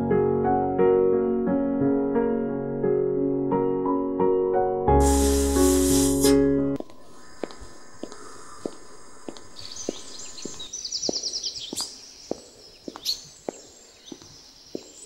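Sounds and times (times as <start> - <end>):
footsteps walking: 6.8 - 15.0
small birds chirping: 6.8 - 15.0.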